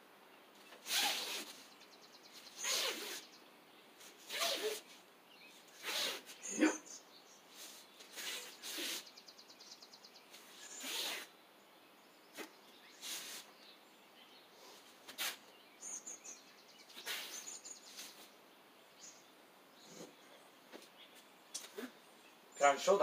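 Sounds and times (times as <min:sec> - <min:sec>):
faint high bird chirps: 0:12.0 - 0:18.3.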